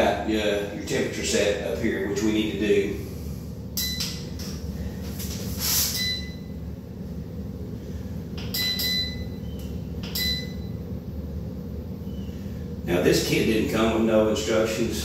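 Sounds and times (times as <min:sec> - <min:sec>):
short high beeps: 0:05.9 - 0:06.4, 0:08.5 - 0:09.4.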